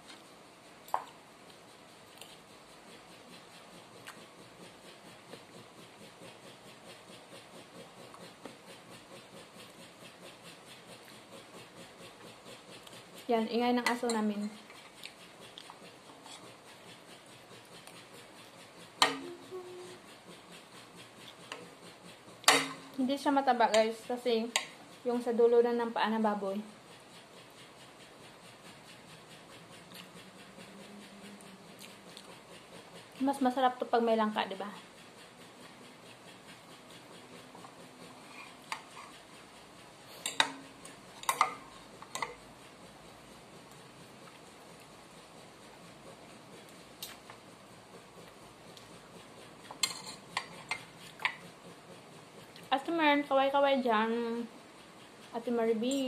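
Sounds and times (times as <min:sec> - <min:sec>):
cutlery scrapes and taps: 0:22.4 - 0:22.8, 0:40.2 - 0:42.4, 0:49.7 - 0:51.4.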